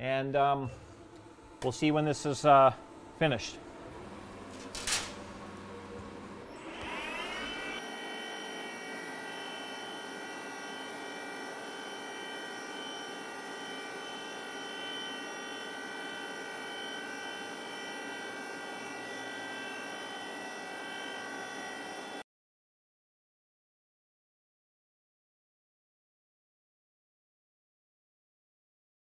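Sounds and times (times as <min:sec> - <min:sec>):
milling machine spindle whine: 0:01.0 - 0:22.2
end mill cutting metal: 0:03.4 - 0:22.2.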